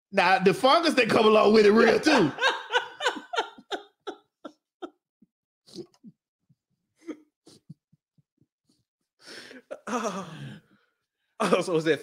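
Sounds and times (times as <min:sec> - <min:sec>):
swallowing: 0:05.7 - 0:06.2.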